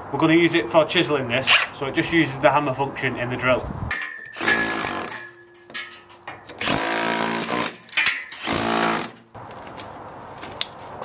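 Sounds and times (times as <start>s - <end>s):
hammer drill chiselling brick: 4.3s - 5.2s, 6.6s - 9.2s.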